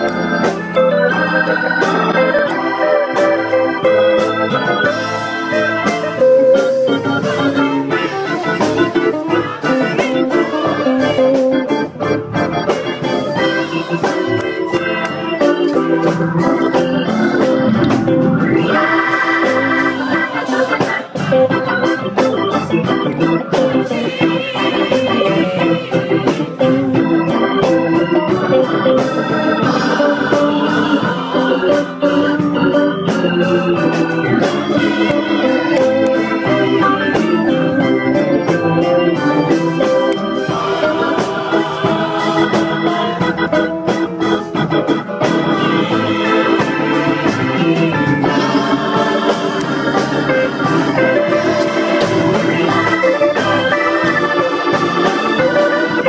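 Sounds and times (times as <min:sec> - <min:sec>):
organ playing sustained chords: 0:00.0 - 0:56.0.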